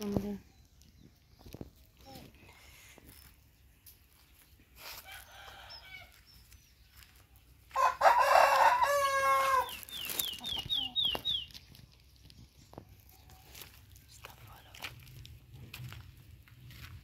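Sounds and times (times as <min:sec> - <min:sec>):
rooster crowing: 0:07.7 - 0:09.8
high bird chirps: 0:09.6 - 0:11.8.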